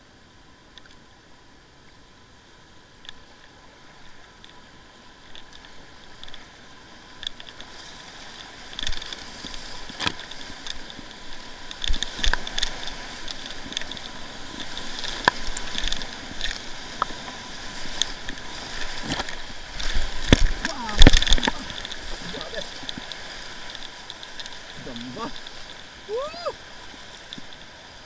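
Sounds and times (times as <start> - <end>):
water rushing: 0.0 - 28.0
paddle splashes: 5.2 - 28.0.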